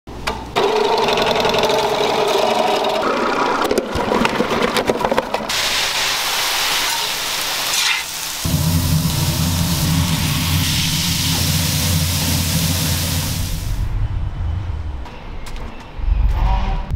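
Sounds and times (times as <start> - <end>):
slicing machine whirring: 0.6 - 3.8
onions sizzling on griddle: 5.5 - 13.8
low steady hum: 8.5 - 15.0.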